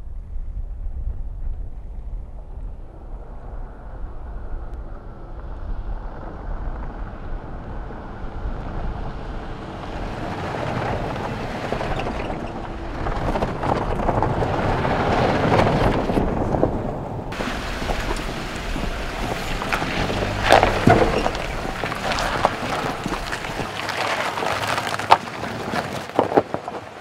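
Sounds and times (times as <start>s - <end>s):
vehicle engine and tyre noise: 0.0s - 27.0s
tyres crackling on dirt: 6.1s - 27.0s.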